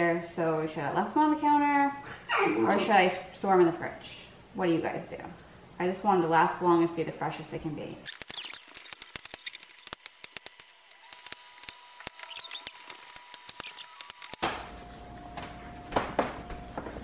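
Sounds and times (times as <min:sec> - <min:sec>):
steady low hum: 0:12.8 - 0:17.0.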